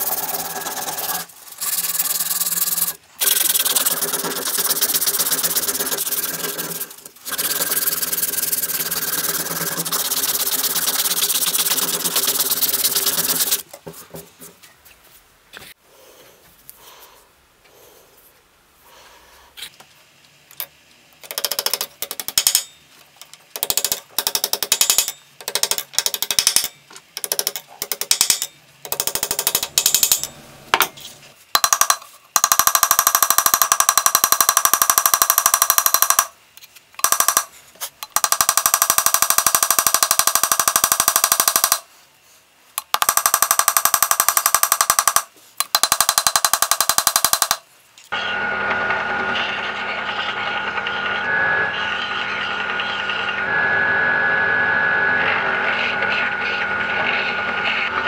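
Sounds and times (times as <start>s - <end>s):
hammer tapping on metal pins: 23.6s - 30.9s, 31.6s - 36.4s, 37.0s - 41.8s, 42.8s - 47.6s.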